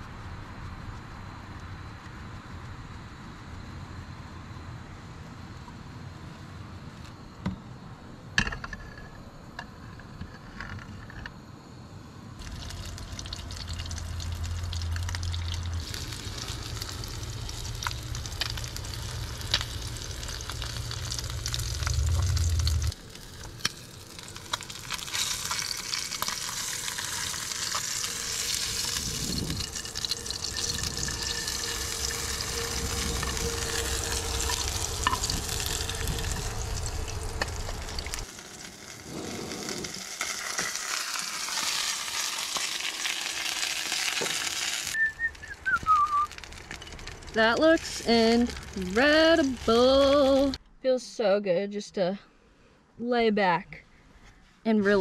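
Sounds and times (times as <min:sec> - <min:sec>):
low steady rumble: 0:12.3 - 0:38.3, 0:45.1 - 0:55.0
fish sizzling in a frying pan: 0:12.4 - 0:45.0, 0:46.1 - 0:50.6.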